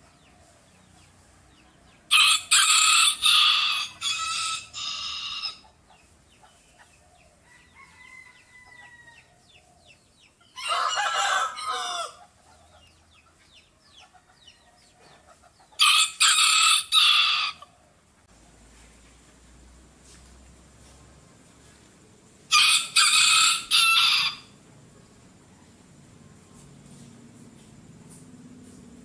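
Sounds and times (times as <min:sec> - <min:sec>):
rooster crowing: 0:02.1 - 0:05.6, 0:07.4 - 0:09.4, 0:10.6 - 0:12.3, 0:15.8 - 0:17.7, 0:22.5 - 0:24.6.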